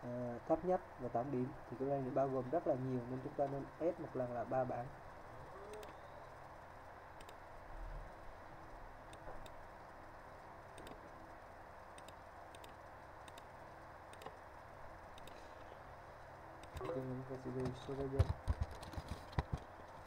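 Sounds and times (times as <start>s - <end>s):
computer mouse clicking: 5.7s - 6.0s, 7.2s - 7.4s, 9.1s - 9.6s, 10.7s - 11.2s, 12.0s - 13.5s, 14.1s - 14.5s, 15.1s - 15.7s, 16.6s - 19.7s.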